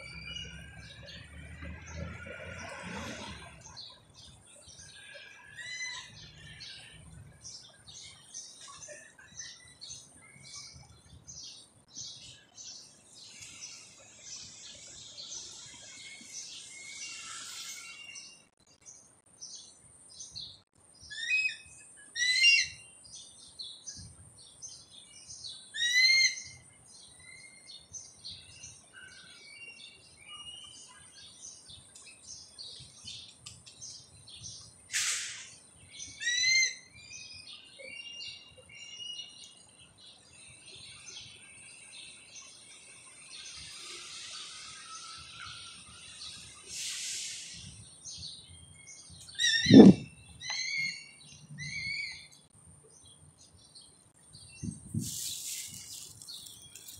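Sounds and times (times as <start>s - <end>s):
harsh bird calls: 0.0s - 10.9s, 41.2s - 52.5s
small birds chirping: 0.0s - 56.9s
brief loud hiss: 34.9s - 35.6s, 46.7s - 47.8s, 55.0s - 56.1s.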